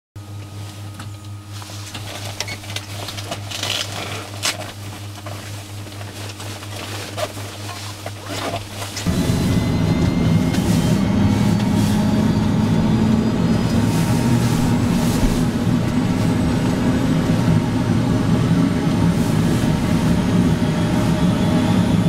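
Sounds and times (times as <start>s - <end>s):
low electrical hum: 0.2s - 21.1s
helicopter engine starting: 9.0s - 19.0s.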